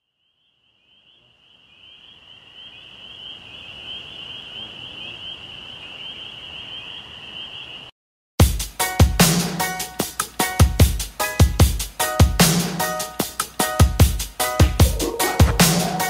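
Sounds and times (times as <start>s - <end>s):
cicadas buzzing: 0.0s - 7.9s.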